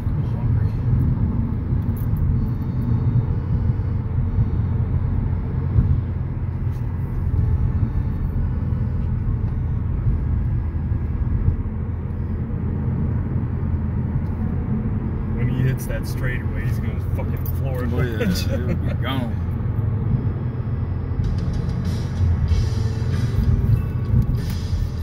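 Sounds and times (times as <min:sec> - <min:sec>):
road and tyre noise in car: 0:00.0 - 0:25.0.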